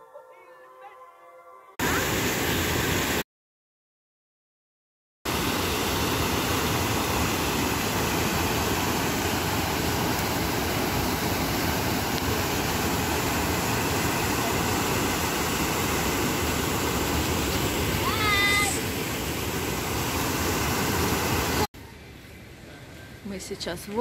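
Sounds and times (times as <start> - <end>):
water cascading over weirs: 1.8 - 3.2, 5.3 - 21.7.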